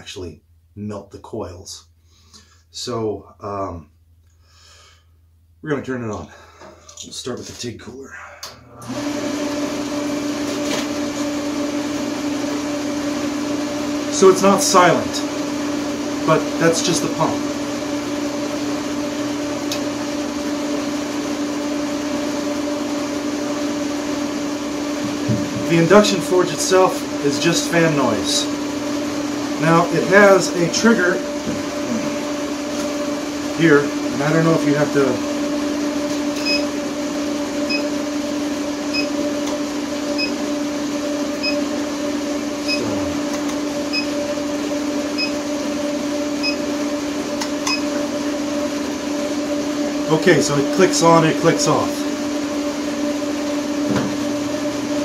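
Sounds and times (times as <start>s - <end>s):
cooling fan whirring: 8.1s - 55.0s
pump humming: 21.3s - 55.0s.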